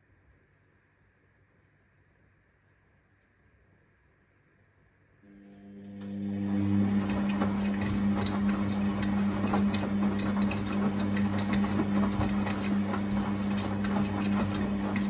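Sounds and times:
washing machine motor hum: 5.2s - 15.0s
water sloshing in drum: 6.7s - 15.0s.

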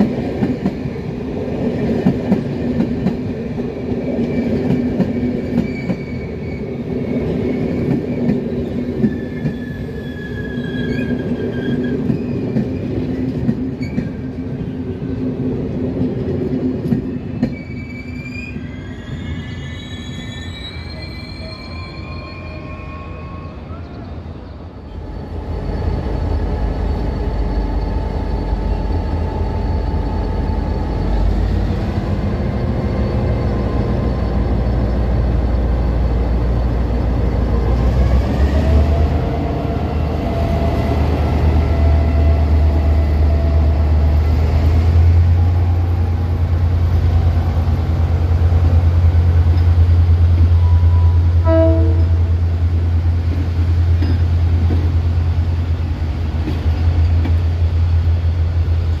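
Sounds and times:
diesel locomotive engines rumbling: 0.0s - 59.0s
brief tone: 50.6s - 52.2s.

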